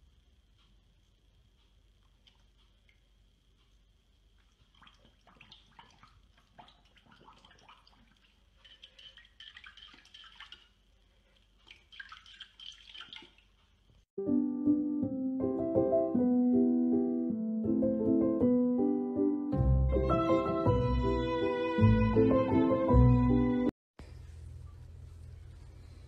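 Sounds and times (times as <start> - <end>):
paw splashing water in bowl: 4.4 - 13.6
piano music: 14.2 - 23.7.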